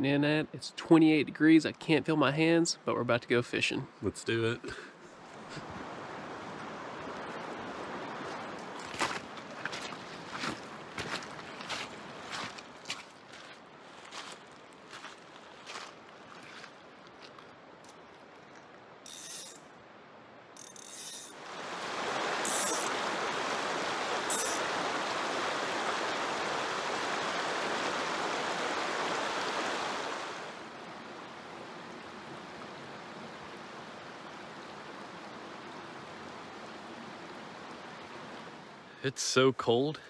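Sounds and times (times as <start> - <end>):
water rushing over rocks: 5.4 - 13.0, 21.3 - 39.9.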